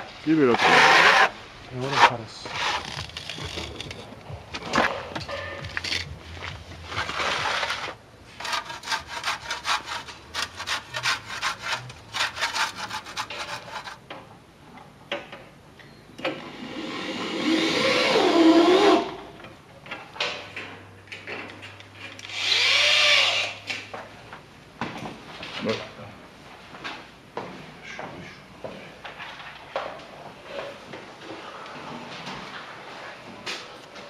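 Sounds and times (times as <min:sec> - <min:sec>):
rasping sawing strokes: 0:07.2 - 0:14.0.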